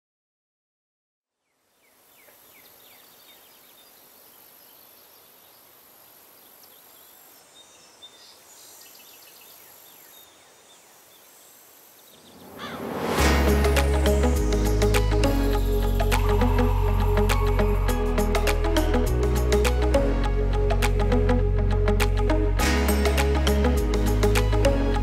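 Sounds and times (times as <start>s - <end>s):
small birds chirping: 1.4s - 13.0s
music: 13.2s - 25.0s.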